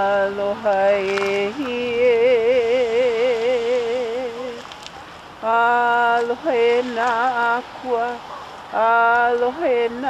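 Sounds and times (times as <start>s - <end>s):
person chanting with vibrato: 5.4s - 10.0s.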